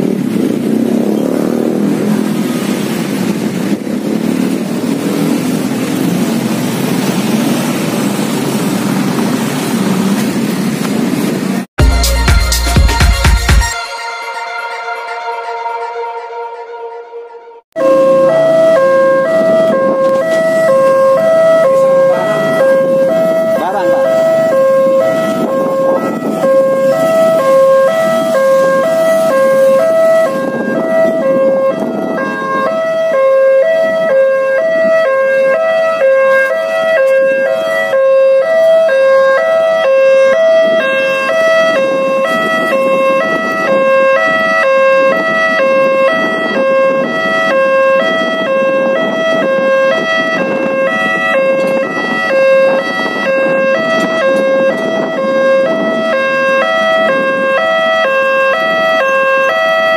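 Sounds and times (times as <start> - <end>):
road traffic engines: 0.0 - 13.7, 14.7 - 59.9
level crossing two-tone alarm: 13.7 - 59.9.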